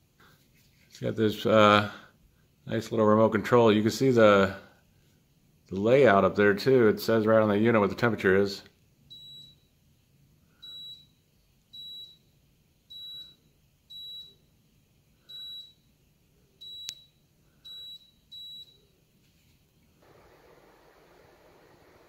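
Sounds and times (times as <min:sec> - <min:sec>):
faint steady hiss: 0:00.0 - 0:22.0
air conditioner beeping: 0:09.1 - 0:09.8, 0:10.6 - 0:14.6, 0:15.2 - 0:16.0, 0:16.6 - 0:19.1.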